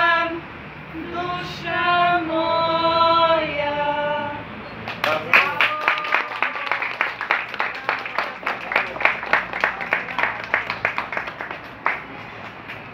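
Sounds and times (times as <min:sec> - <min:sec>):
audience applauding: 0:04.8 - 0:12.9.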